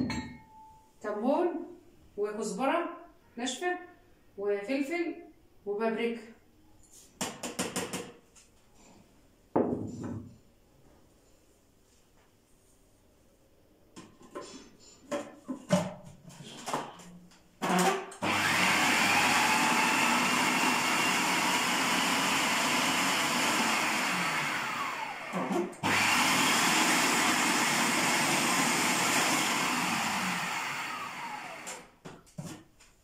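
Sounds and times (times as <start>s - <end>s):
food processor running: 17.6s - 31.9s
motor winding down whine: 29.4s - 31.9s.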